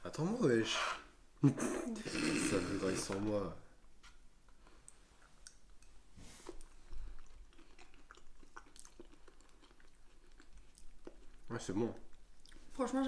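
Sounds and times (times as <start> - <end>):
chewing and mouth clicks: 4.6 - 12.7.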